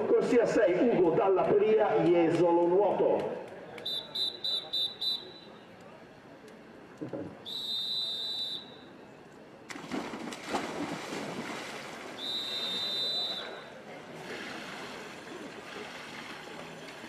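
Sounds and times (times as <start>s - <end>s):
high whistle blast: 3.8s - 5.5s, 7.5s - 8.9s, 12.2s - 13.7s
water splashing: 9.7s - 17.0s.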